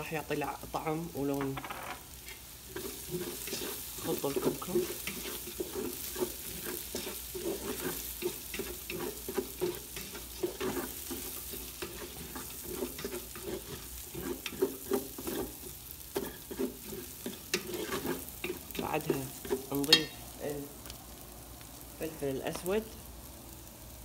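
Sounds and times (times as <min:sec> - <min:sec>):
onions sizzling in oil: 0:00.0 - 0:24.0
wooden spatula scraping a pot: 0:01.6 - 0:20.2.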